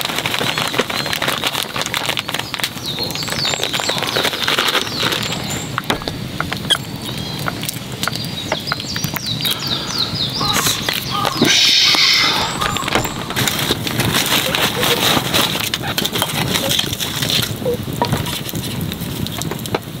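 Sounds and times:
plastic bag crinkling: 0:00.0 - 0:07.9, 0:12.8 - 0:17.6
campfire crackling: 0:00.0 - 0:20.0
birds chirping: 0:02.1 - 0:16.6.

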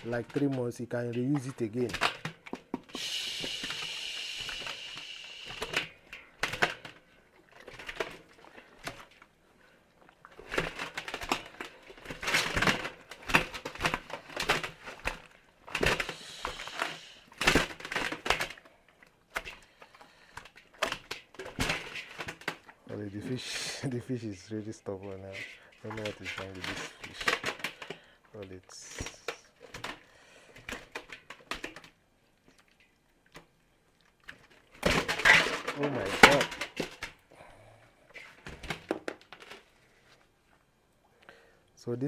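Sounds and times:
fish slapping against metal bowl: 0:10.5 - 0:18.6, 0:20.4 - 0:22.8.

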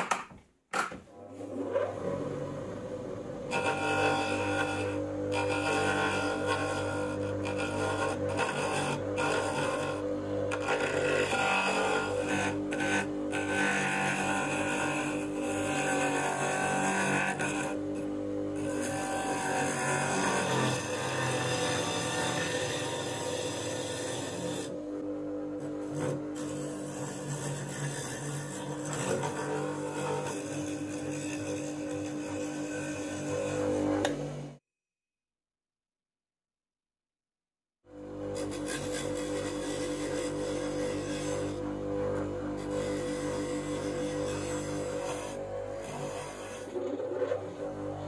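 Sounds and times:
bench grinder motor humming: 0:01.1 - 0:34.6, 0:37.9 - 0:48.0
chisel scraping spinning wheel: 0:03.5 - 0:18.0, 0:25.6 - 0:34.2, 0:38.3 - 0:48.0.

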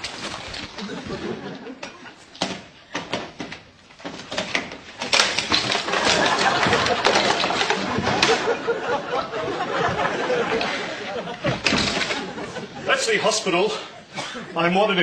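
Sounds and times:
chair falling over: 0:00.0 - 0:12.8
studio audience laughing: 0:00.8 - 0:02.1, 0:05.9 - 0:13.0.

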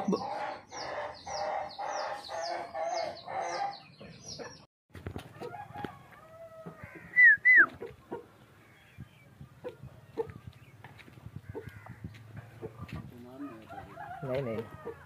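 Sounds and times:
poultry calling: 0:11.4 - 0:15.0.

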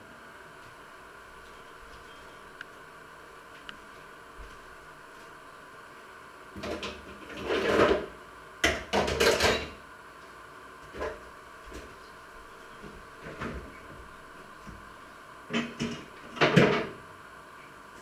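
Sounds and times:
dishes knocking and clattering: 0:06.6 - 0:09.8, 0:15.5 - 0:17.0.

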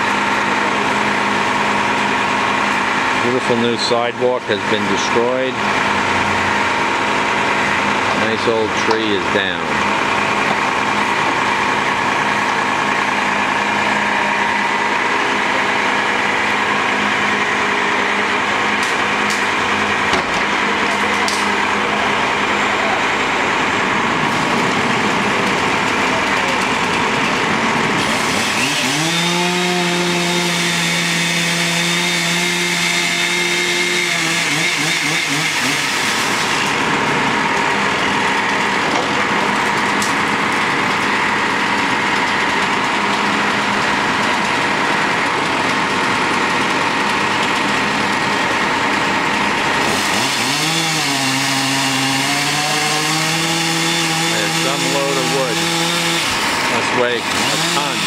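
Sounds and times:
chainsaw cutting wood: 0:26.8 - 0:58.0.

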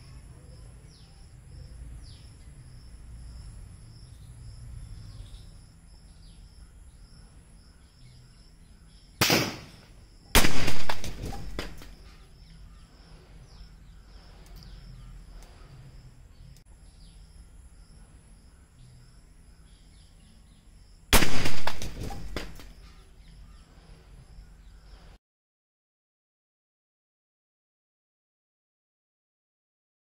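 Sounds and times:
birds chirping: 0:00.0 - 0:25.2
rifle shot: 0:09.2 - 0:12.0, 0:21.1 - 0:22.8.

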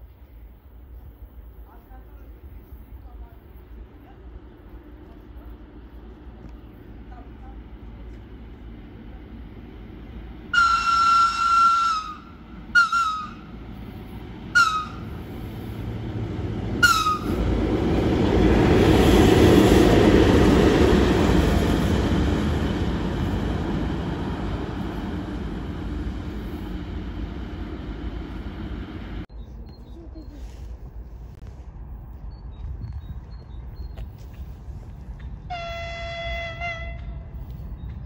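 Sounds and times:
locomotive passing by: 0:00.0 - 0:30.4
locomotive high-pitched whistle: 0:10.5 - 0:13.5, 0:14.5 - 0:15.2, 0:16.8 - 0:17.4.

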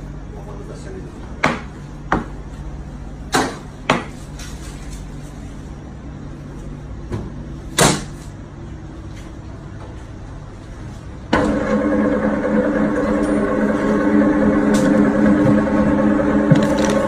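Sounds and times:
steady low hum: 0:00.0 - 0:17.0
knife chopping on plastic board: 0:01.4 - 0:02.3.

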